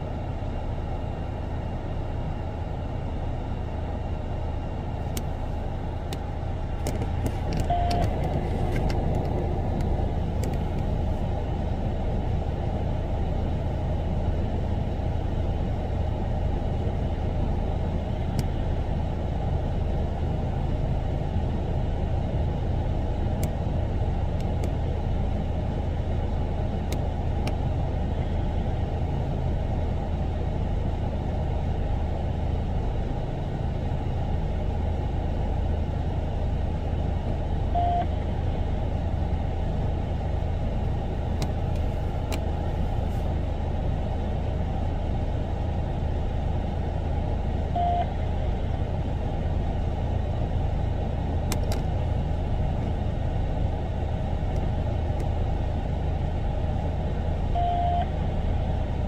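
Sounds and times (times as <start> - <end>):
street traffic rumble: 0.0 - 59.0
short single-pitched beep: 7.6 - 8.1, 37.8 - 38.1, 47.8 - 48.1, 57.6 - 58.1.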